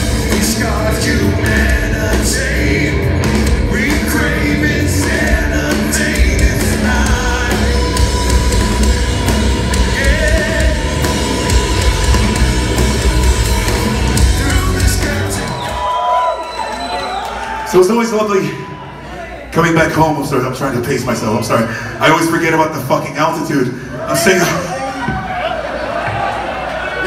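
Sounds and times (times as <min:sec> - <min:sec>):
bass guitar: 0:00.0 - 0:15.9
keyboards: 0:00.0 - 0:18.4
drums: 0:00.0 - 0:18.7, 0:19.8 - 0:27.0.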